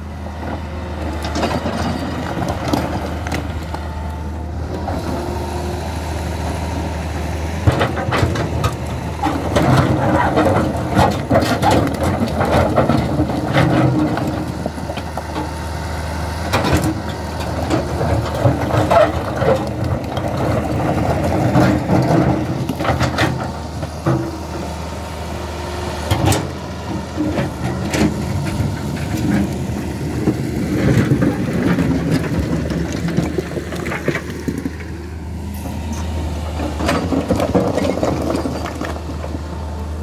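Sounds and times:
excavator diesel engine running: 0.0s - 40.0s
boulders knocking and clattering: 7.6s - 15.6s, 16.5s - 24.5s, 26.1s - 35.3s, 36.4s - 39.7s.

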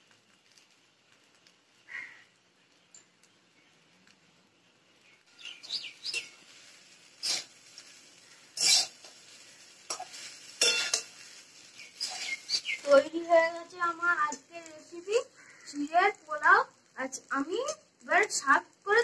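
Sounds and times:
small birds chirping: 1.8s - 16.4s
metal spatula clanking steel pot: 8.6s - 9.2s, 9.9s - 11.2s.

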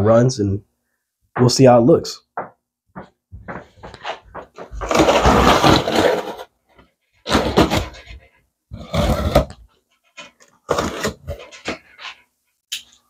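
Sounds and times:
packing tape ripping off cardboard: 4.8s - 6.5s, 7.2s - 8.1s.

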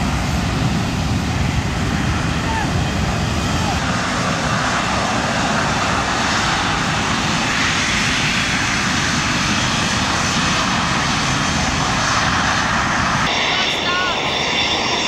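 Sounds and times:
loud jet engine roar: 0.0s - 15.0s.

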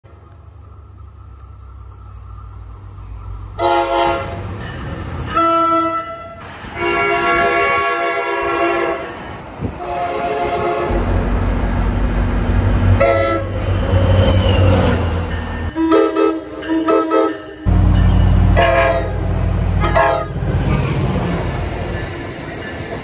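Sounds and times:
low rumble of approaching train: 0.0s - 23.0s
train air horn blasts: 3.6s - 4.5s, 5.3s - 9.2s, 9.8s - 11.1s, 13.0s - 14.0s, 15.7s - 20.4s.

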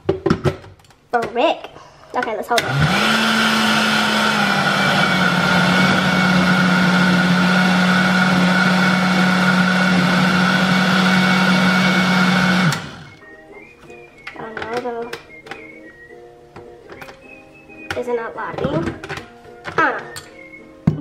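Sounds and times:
blender running: 2.6s - 13.2s.

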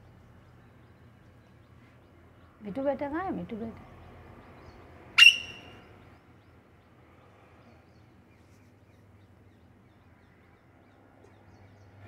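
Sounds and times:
parakeet screech: 5.2s - 5.7s.

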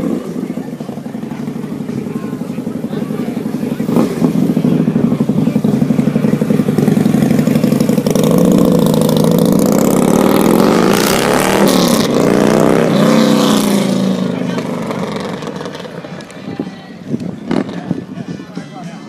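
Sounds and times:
motorcycle engine revving: 0.0s - 18.5s.

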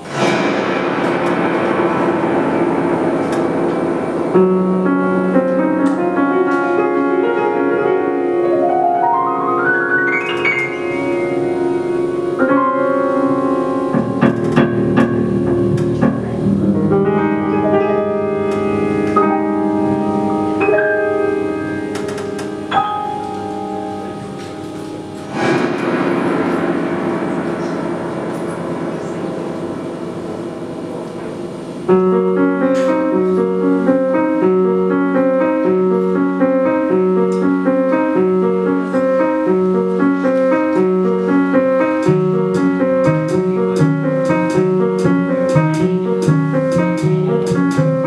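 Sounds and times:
drums: 0.0s - 4.6s, 24.8s - 30.2s, 42.0s - 48.0s
piano: 0.0s - 48.0s
bass: 9.2s - 32.4s, 40.9s - 48.0s.

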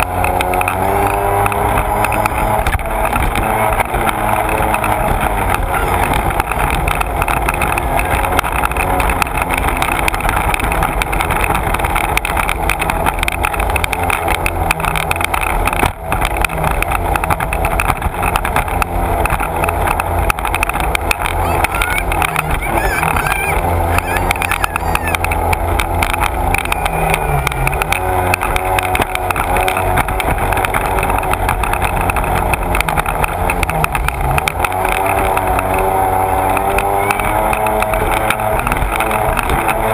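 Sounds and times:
personal watercraft engine: 0.0s - 39.9s.

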